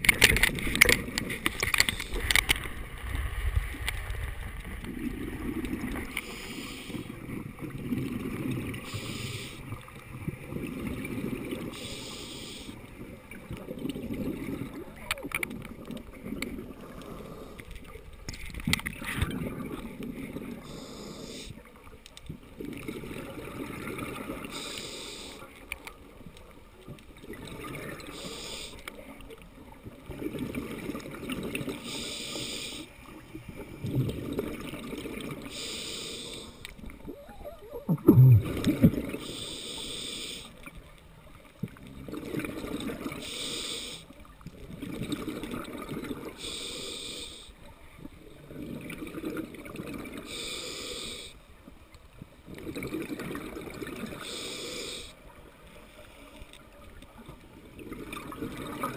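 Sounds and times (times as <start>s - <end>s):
exhaled air bubbling: 0.0s - 21.6s, 22.3s - 25.4s, 29.8s - 40.8s, 41.5s - 51.4s, 52.2s - 55.2s, 57.6s - 58.9s
regulator hissing inhale: 6.1s - 7.2s, 8.8s - 9.7s, 11.7s - 12.8s, 20.6s - 21.6s, 24.4s - 25.6s, 28.0s - 28.9s, 31.8s - 33.0s, 35.4s - 36.7s, 39.2s - 40.6s, 43.1s - 44.1s, 46.3s - 47.6s, 50.2s - 51.4s, 54.2s - 55.2s.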